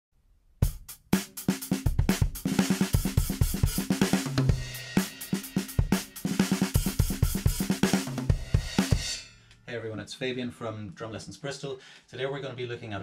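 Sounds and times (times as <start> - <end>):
drum kit playing fast groove: 0.6 - 9.6
open hi-hat: 0.6 - 9.7.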